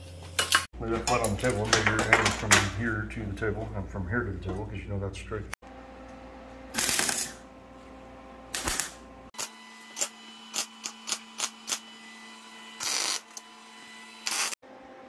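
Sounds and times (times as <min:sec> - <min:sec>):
welding crackling bursts: 0:06.7 - 0:07.4, 0:08.5 - 0:11.8, 0:14.2 - 0:14.6.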